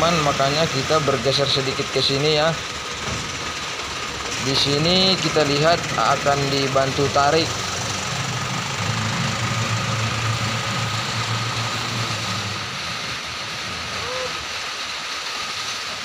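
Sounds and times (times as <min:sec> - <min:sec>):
diesel truck engine running: 0:00.0 - 0:15.9.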